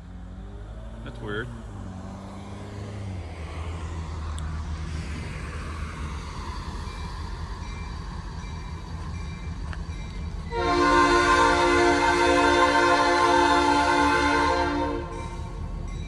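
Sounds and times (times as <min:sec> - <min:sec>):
low steady rumble: 0:03.2 - 0:15.8
locomotive air horn: 0:10.5 - 0:15.6.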